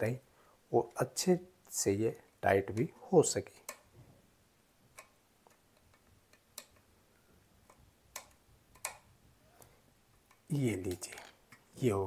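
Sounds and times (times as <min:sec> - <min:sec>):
faint clicks of small parts: 0:01.7 - 0:04.0, 0:04.9 - 0:11.8.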